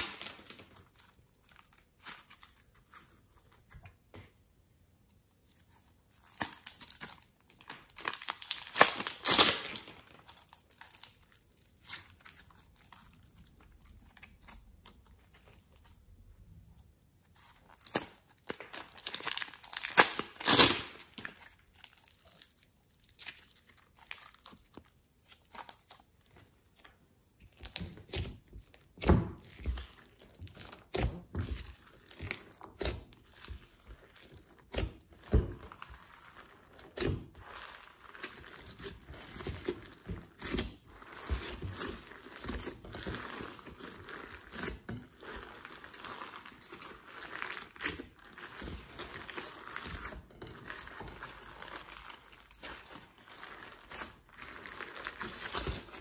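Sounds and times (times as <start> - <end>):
slime squelching and popping: 0.0 - 56.0
plastic bag crinkling: 6.4 - 14.3, 17.7 - 25.9, 29.6 - 56.0.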